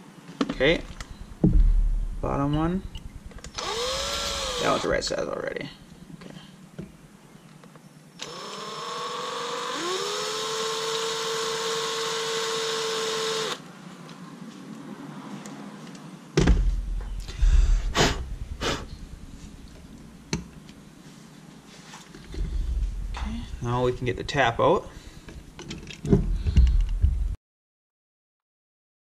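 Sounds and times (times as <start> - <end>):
loud thumps and knocks: 0.8 - 4.6, 16.4 - 20.6, 26.0 - 27.4
cordless drill whine: 3.4 - 5.0, 8.2 - 13.6.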